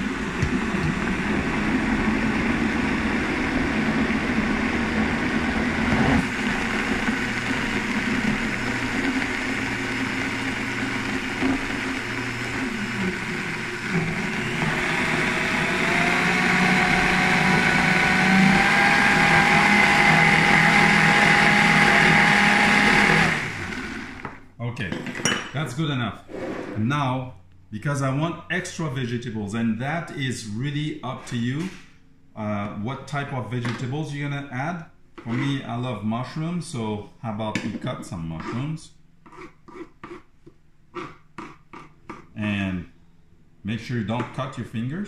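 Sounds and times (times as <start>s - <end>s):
blender running: 0.0s - 24.4s.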